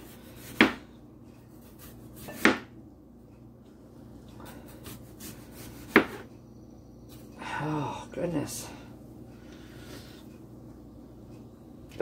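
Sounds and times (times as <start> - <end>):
knife striking cutting board: 2.2 - 2.7, 5.8 - 6.2.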